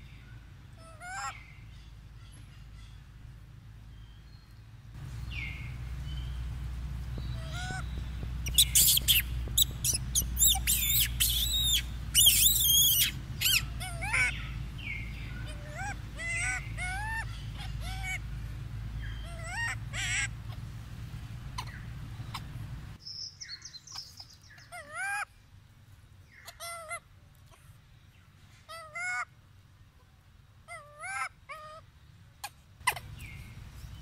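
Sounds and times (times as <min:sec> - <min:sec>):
monkeys squealing: 0:07.4 - 0:07.8, 0:08.4 - 0:14.5, 0:15.4 - 0:18.2, 0:19.2 - 0:20.6, 0:21.6 - 0:22.5, 0:32.8 - 0:33.2.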